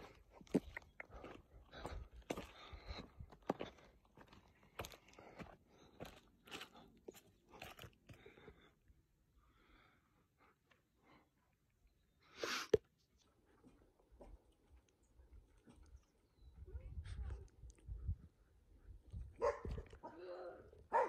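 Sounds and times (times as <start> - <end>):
footsteps on gravel: 0.0 - 8.4.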